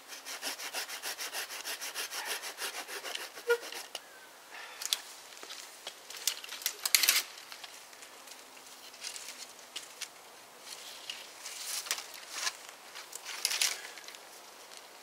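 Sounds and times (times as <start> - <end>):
twigs rustling and crackling: 4.8 - 15.0.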